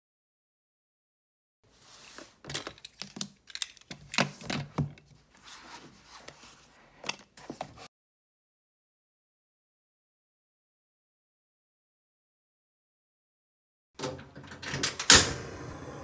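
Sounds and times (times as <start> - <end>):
paper and cover rustling: 1.7 - 7.9.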